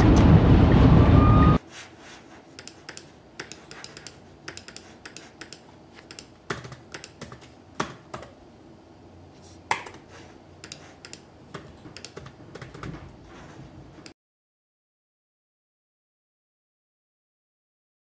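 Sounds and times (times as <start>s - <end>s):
laptop keyboard typing: 2.6s - 8.4s, 10.6s - 13.0s.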